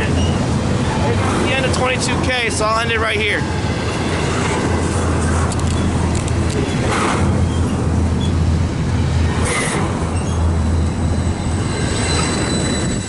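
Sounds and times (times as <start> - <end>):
freight train wheels rumbling: 0.0 - 13.0
thin high whine: 2.6 - 13.0.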